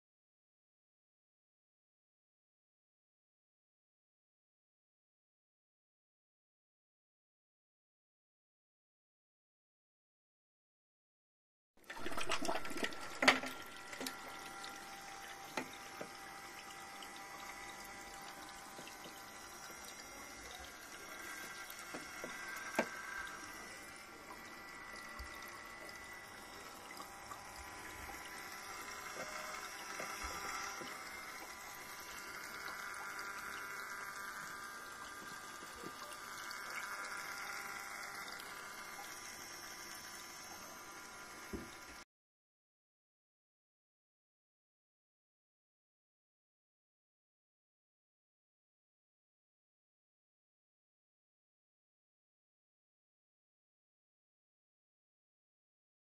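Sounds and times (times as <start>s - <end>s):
water churning and splashing: 11.9s - 14.3s
faint pump whine: 11.9s - 42.0s.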